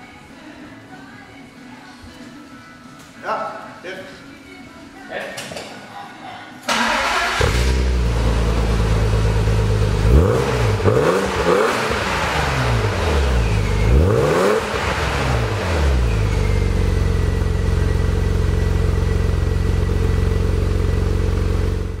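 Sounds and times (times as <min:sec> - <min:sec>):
car engine idling and revving: 0:07.0 - 0:22.0.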